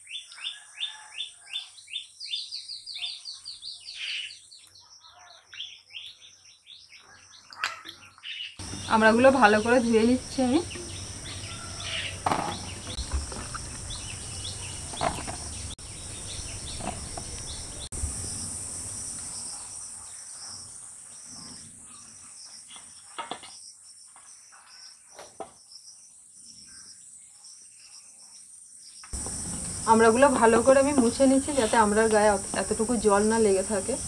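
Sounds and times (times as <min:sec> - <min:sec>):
insects chirring: 0:08.6 - 0:34.0.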